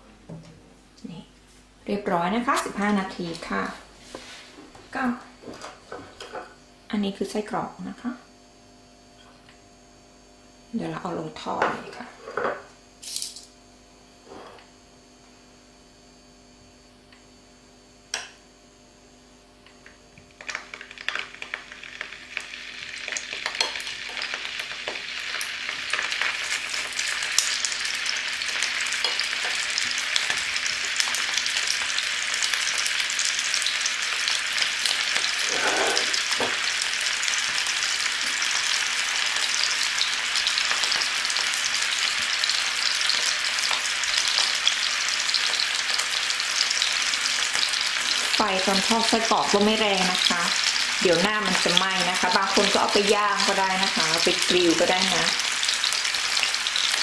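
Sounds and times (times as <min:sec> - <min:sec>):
sausages sizzling in oil: 0:20.3 - 0:57.0.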